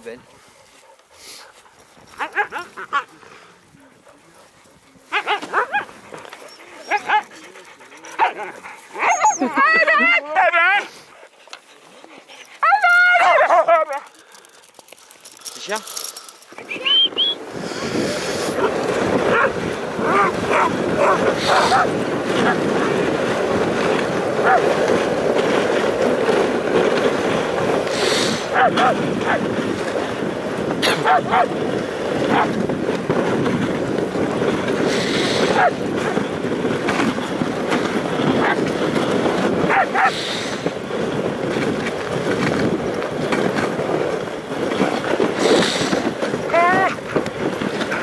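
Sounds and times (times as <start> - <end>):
sled runners hissing on snow: 0.0 - 9.4, 10.7 - 12.8, 15.5 - 48.0
huskies yelping: 2.1 - 3.2, 5.1 - 7.4, 8.2 - 10.9, 12.6 - 14.1, 18.5 - 22.6, 30.8 - 31.6, 39.7 - 40.2.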